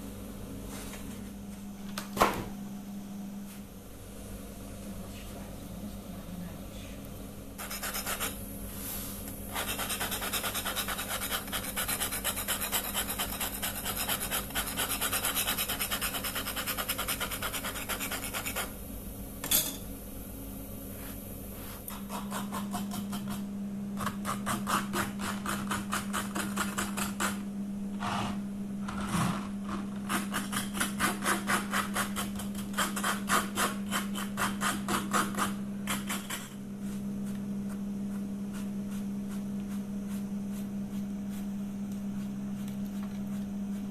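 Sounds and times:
steady low hum: 0:00.0 - 0:43.9
knife sawing through bread: 0:07.6 - 0:08.4, 0:09.5 - 0:18.7, 0:21.9 - 0:23.4, 0:24.0 - 0:27.4, 0:29.0 - 0:36.5
cloth scratching bread crust: 0:07.6 - 0:18.7, 0:38.1 - 0:43.9.

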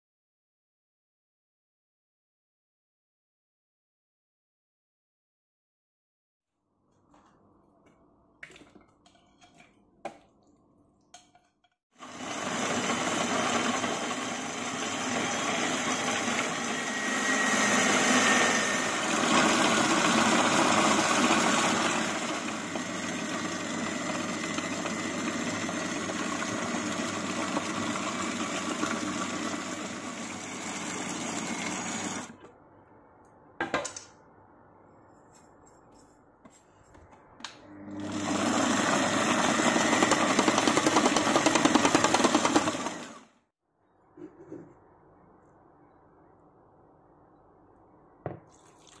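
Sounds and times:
food processor chopping: 0:12.0 - 0:32.4, 0:37.8 - 0:43.3.

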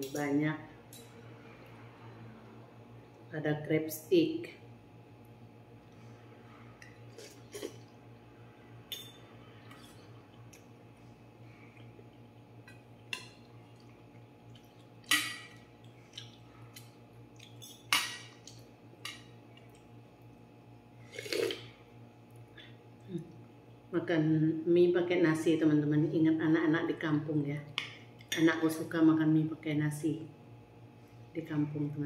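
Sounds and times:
low steady hum: 0:00.0 - 0:32.0
cutlery clinking on metal bowl: 0:15.0 - 0:15.6, 0:17.6 - 0:18.4.

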